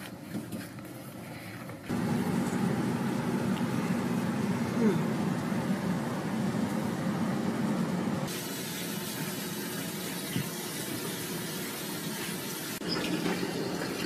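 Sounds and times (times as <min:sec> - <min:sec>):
steady low hum: 0:00.1 - 0:08.3.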